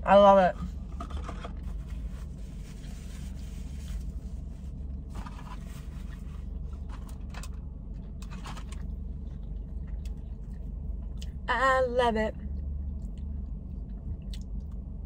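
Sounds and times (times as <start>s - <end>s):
steady low hum: 0.0s - 15.0s
quiet chewing: 8.8s - 11.4s, 12.4s - 14.8s.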